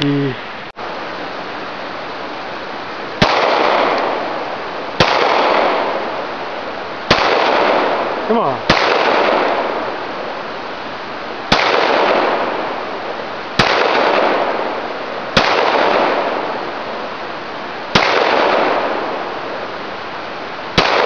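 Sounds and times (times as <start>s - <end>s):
handgun shots echoing: 8.7s - 9.5s.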